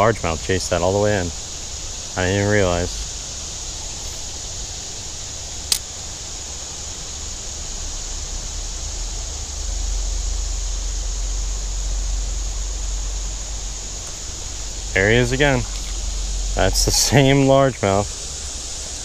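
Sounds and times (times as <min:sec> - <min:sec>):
flowing creek hiss: 0:00.0 - 0:19.0
sharp click: 0:05.7 - 0:05.9.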